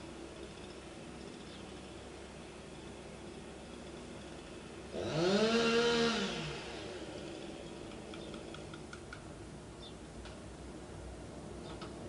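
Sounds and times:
chainsaw engine revving: 4.9s - 8.6s.

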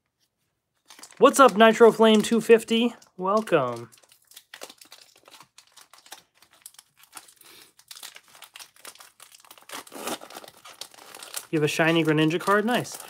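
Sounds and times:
foil wrapper crinkling: 0.8s - 13.0s.

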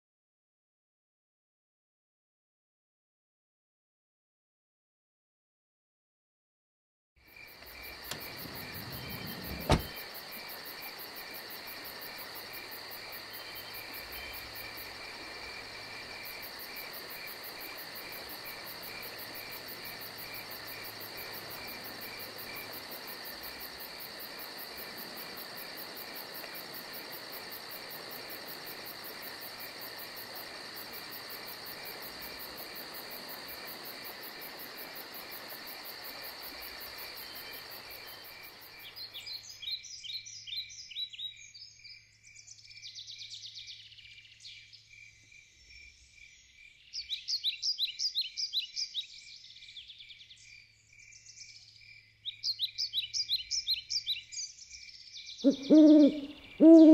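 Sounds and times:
pulsing insect chirp: 7.3s - 39.7s, 55.5s - 56.9s.

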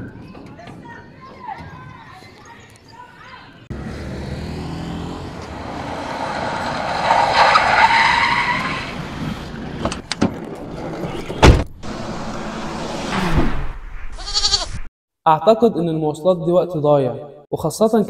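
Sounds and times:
road vehicle passing with whine: 3.6s - 13.8s
loud thump: 11.4s - 14.2s.

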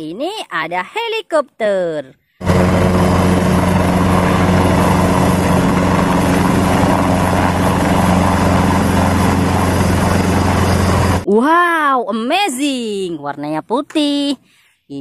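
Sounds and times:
helicopter flying low: 2.4s - 11.3s.

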